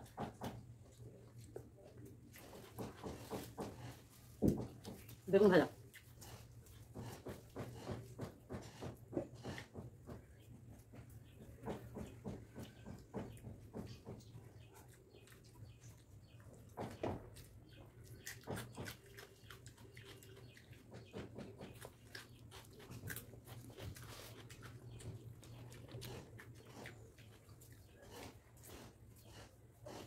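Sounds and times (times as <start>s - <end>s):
fingers working food on plate: 5.8s - 30.0s
chewing smacks: 14.4s - 30.0s.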